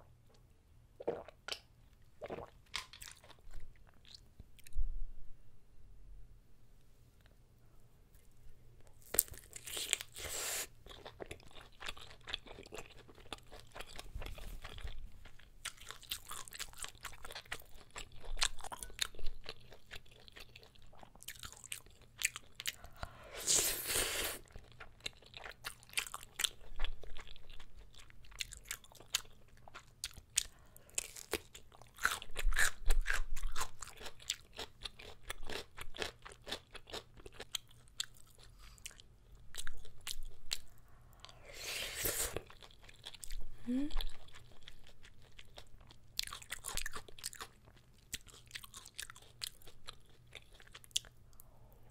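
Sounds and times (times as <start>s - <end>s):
close chewing: 10.8s - 23.1s, 42.3s - 51.2s
slurping noodles: 41.4s - 42.4s.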